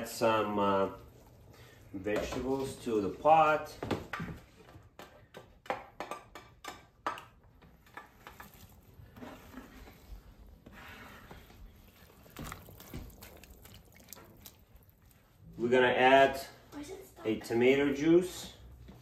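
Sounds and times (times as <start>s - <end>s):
liquid sloshing: 8.2s - 10.1s, 11.4s - 15.4s.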